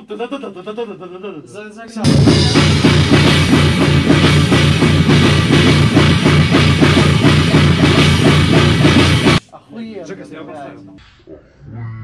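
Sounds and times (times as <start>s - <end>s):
drum kit fast beat: 2.0s - 9.5s
heavy rock band playing live: 2.1s - 9.4s.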